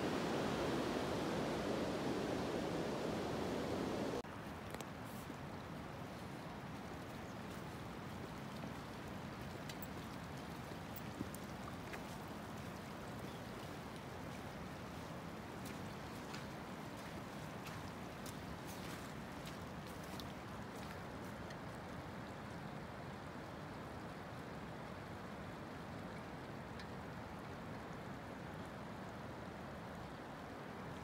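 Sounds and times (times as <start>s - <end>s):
stream rushing over stones: 0.0s - 4.2s
small ticks and splashes: 4.6s - 24.1s.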